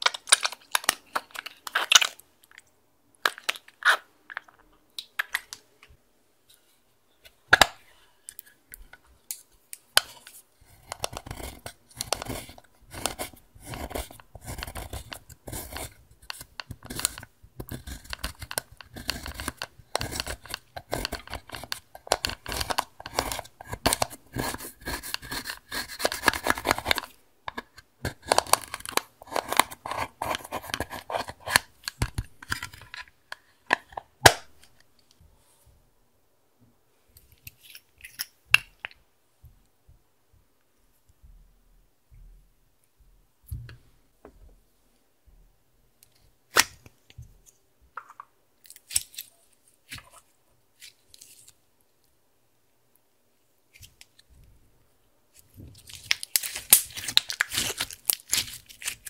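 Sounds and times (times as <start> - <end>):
spatula scraping eyeshadow powder: 10.6 - 27.1, 28.0 - 31.8.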